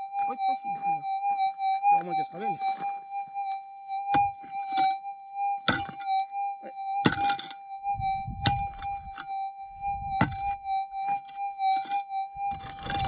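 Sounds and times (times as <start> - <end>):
metal detector high tone: 0.0 - 13.0
pick striking rocky ground: 4.1 - 4.4, 7.0 - 7.5, 8.1 - 9.2, 10.0 - 10.6.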